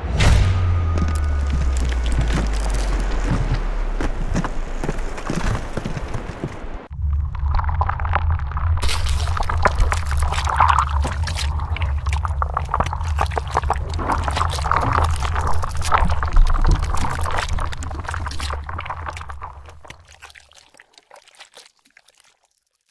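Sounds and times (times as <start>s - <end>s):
deep steady rumble: 0.0s - 19.9s
liquid splashing and gurgling: 1.5s - 22.9s
small crackling splats: 1.5s - 22.9s.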